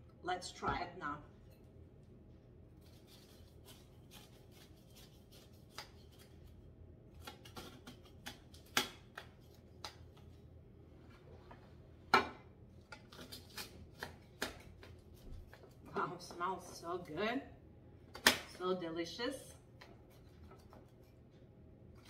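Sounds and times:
knife crunching pastry crust: 2.7 - 10.2, 12.8 - 15.8.

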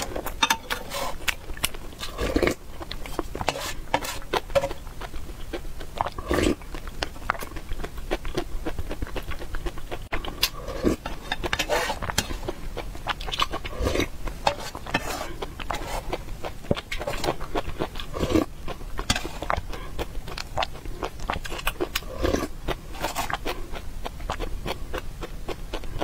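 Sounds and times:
slurping soup from a spoon: 0.0 - 1.3, 2.0 - 4.8, 6.0 - 6.6, 10.2 - 12.6, 13.2 - 16.2, 16.8 - 19.9, 22.0 - 23.6
wet chewing: 0.0 - 26.0.

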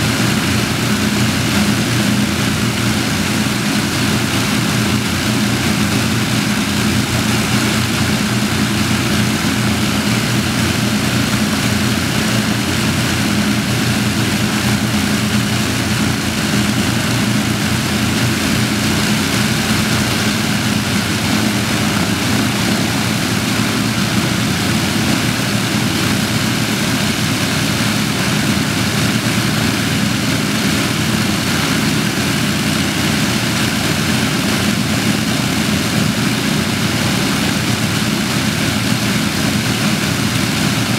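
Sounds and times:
aircraft engines running: 0.0 - 40.9.

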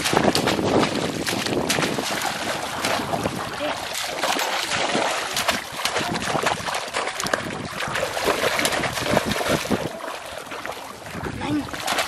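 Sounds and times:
water splashing and sloshing: 0.0 - 12.0.

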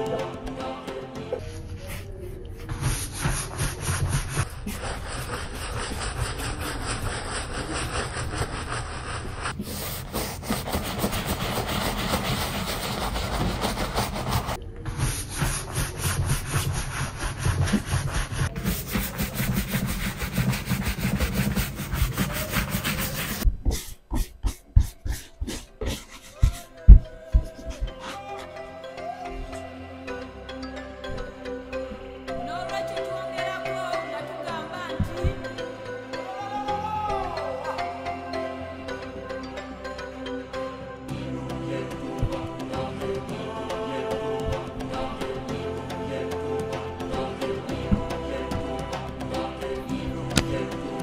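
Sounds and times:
brush rubbing on leather boot: 2.8 - 28.2.

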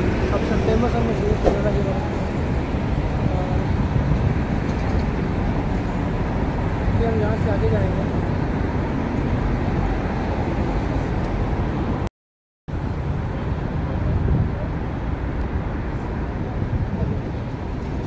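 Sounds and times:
city street traffic: 0.0 - 12.1, 12.7 - 18.0.

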